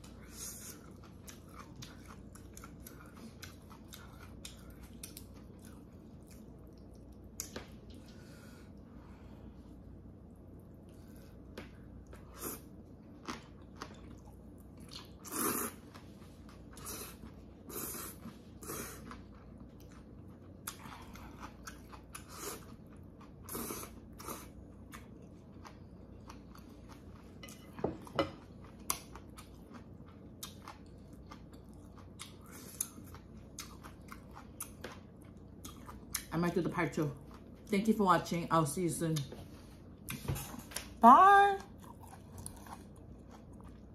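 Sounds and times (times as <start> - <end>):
chewing and slurping noodles: 0.0 - 7.2, 41.8 - 43.9.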